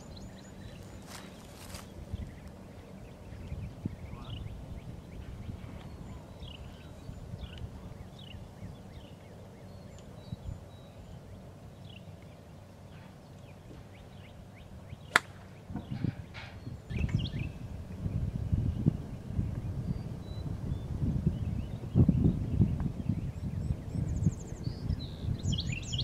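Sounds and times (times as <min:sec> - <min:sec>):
golf iron striking ball: 0:15.1 - 0:16.6.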